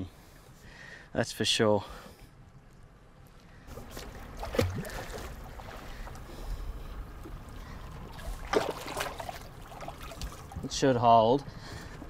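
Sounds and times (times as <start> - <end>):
fish thrashing at surface: 3.7 - 6.2, 7.8 - 10.6
water splashing against boat hull: 3.7 - 6.3, 7.1 - 12.0.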